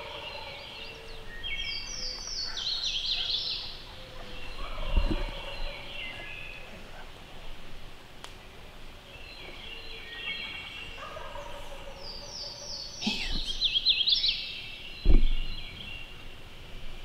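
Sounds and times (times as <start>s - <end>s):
sharp loud thump: 15.0s - 15.5s.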